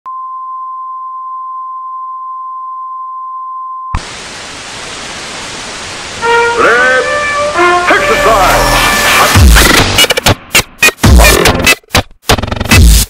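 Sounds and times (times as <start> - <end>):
tv static hiss: 4.0 - 11.7.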